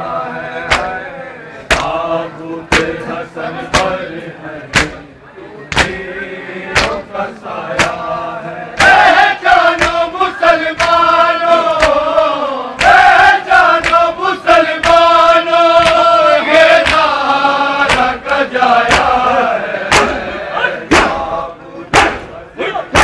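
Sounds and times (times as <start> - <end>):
mourners chanting a lament: 0.0 - 23.0
hand slaps on bare chests: 0.7 - 1.0, 1.7 - 2.0, 2.7 - 3.0, 3.7 - 4.0, 4.7 - 5.0, 5.7 - 6.0, 6.8 - 7.1, 7.8 - 8.0, 9.7 - 10.1, 10.7 - 11.0, 11.7 - 12.1, 12.8 - 13.1, 13.7 - 14.1, 14.8 - 15.1, 15.8 - 16.1, 16.8 - 17.1, 17.8 - 19.2, 19.9 - 20.2, 20.9 - 21.2, 21.9 - 22.3.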